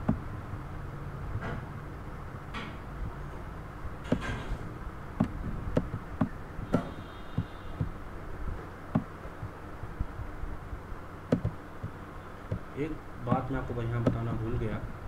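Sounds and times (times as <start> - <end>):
low background hum: 0.0 - 15.0
computer mouse clicking: 11.3 - 11.6.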